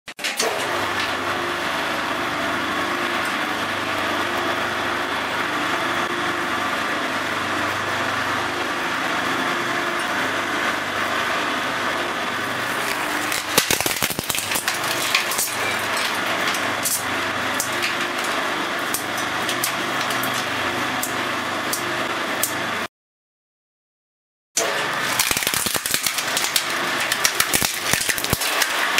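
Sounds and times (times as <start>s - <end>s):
shredder motor hum: 0.2s - 22.9s, 24.6s - 28.9s
plastic crunching and cracking: 12.7s - 17.0s, 25.0s - 28.9s
plastic snapping: 12.8s - 16.6s, 25.1s - 28.9s.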